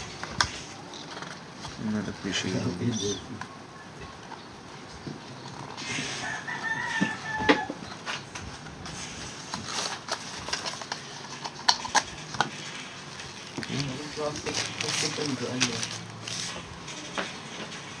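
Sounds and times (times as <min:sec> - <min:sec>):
cardboard rubbing and sliding: 0:05.6 - 0:11.5, 0:12.2 - 0:18.0.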